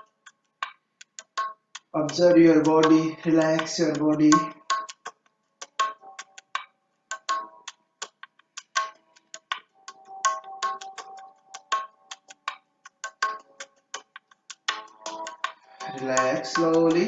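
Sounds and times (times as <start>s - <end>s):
light ringing strikes music: 14.7s - 17.0s.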